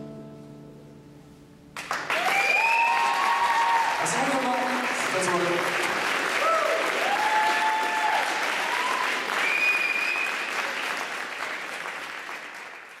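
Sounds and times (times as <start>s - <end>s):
audience applauding and cheering: 1.8s - 13.0s
whoops: 2.1s - 4.0s, 6.3s - 10.5s
whistle: 9.4s - 10.5s.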